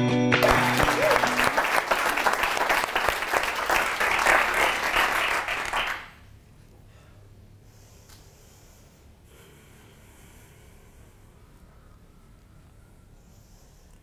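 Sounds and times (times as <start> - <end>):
audience applauding: 0.3 - 6.3.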